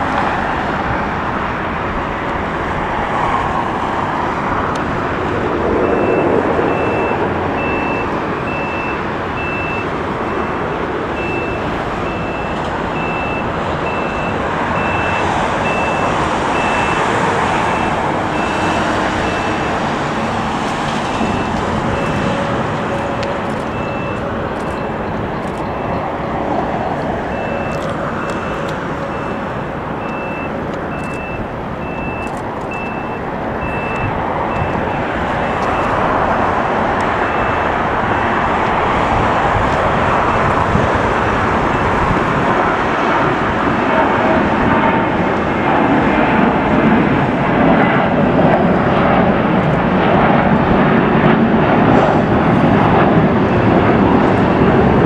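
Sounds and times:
jet engines roaring: 0:00.0 - 0:55.0
reversing alarm beeping: 0:05.8 - 0:26.0, 0:27.3 - 0:36.1, 0:37.1 - 0:38.4, 0:52.6 - 0:55.0.

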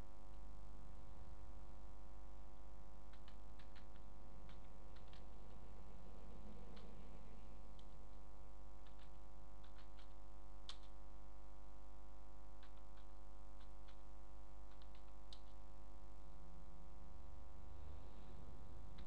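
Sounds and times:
steady background hum: 0:00.0 - 0:19.0
keyboard typing: 0:03.0 - 0:05.7, 0:08.8 - 0:11.0, 0:12.5 - 0:15.6.

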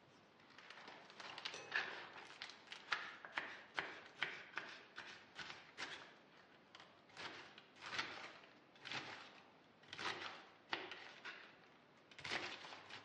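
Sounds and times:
knife slicing cabbage on board: 0:02.7 - 0:11.5, 0:12.1 - 0:13.0.

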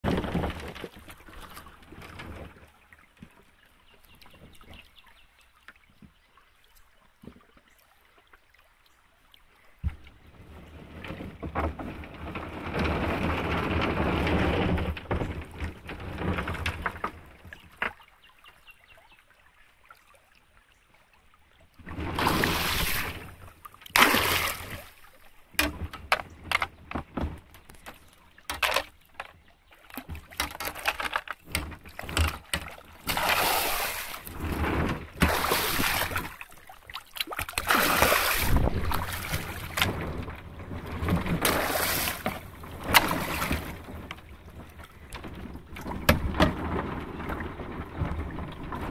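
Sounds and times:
river water splashing: 0:12.0 - 0:48.9
kayak paddle strokes: 0:21.8 - 0:48.9
paddle knocks: 0:21.9 - 0:48.9.

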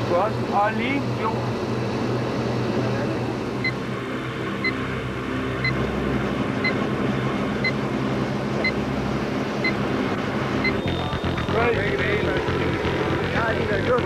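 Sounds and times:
steady low drone: 0:00.0 - 0:14.0
electronic timer beeps: 0:04.6 - 0:04.8, 0:10.6 - 0:11.8.

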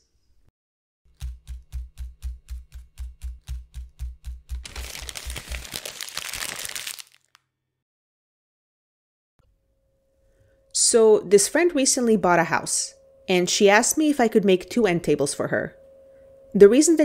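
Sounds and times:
rapid clicks with low thumps: 0:01.2 - 0:04.6
paper crinkling: 0:04.6 - 0:07.4.

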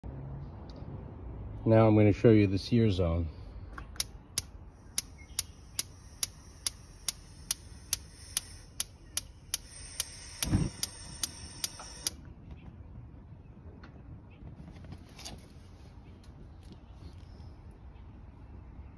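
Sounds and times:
grill spark igniter clicking: 0:04.0 - 0:12.2.

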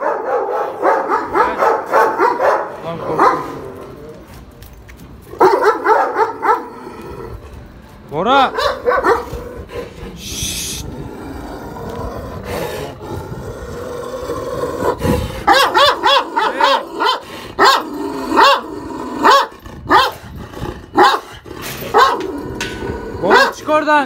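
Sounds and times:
dogs barking sharply: 0:00.0 - 0:03.6, 0:05.3 - 0:06.8, 0:08.5 - 0:09.4, 0:15.4 - 0:20.2, 0:20.9 - 0:22.4, 0:23.2 - 0:23.8
dogs growling: 0:05.2 - 0:07.8, 0:08.5 - 0:24.0.

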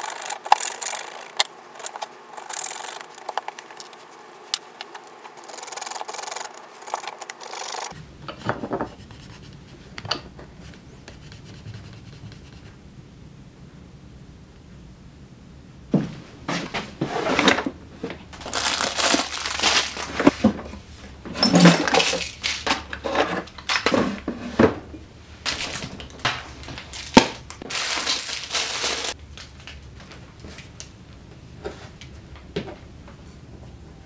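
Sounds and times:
tools and metal parts rattling: 0:00.0 - 0:03.9, 0:21.3 - 0:24.1.

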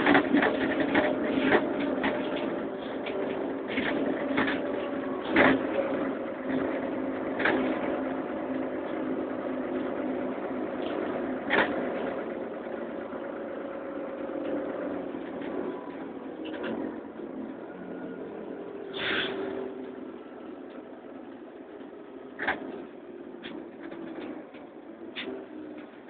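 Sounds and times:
sharp knocks and rattles: 0:00.0 - 0:10.0
bus engine humming: 0:00.0 - 0:26.0.

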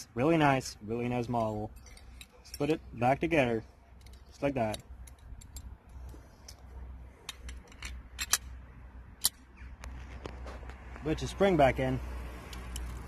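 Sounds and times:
clicks of gun parts handled: 0:04.0 - 0:08.6, 0:09.2 - 0:10.4.

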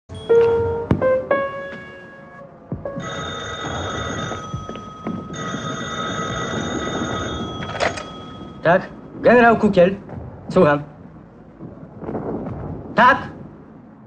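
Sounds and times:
telephone bell ringing: 0:03.0 - 0:08.6.

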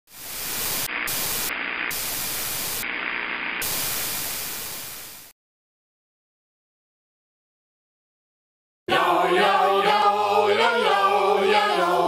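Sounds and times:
television static hiss: 0:00.1 - 0:05.3.

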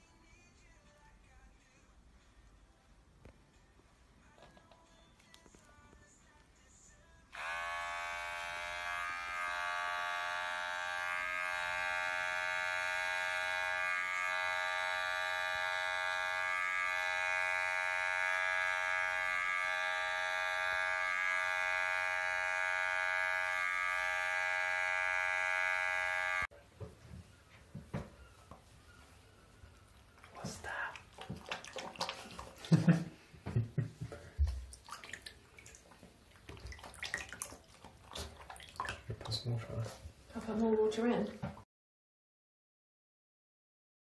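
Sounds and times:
electric clippers buzzing: 0:07.3 - 0:26.5.

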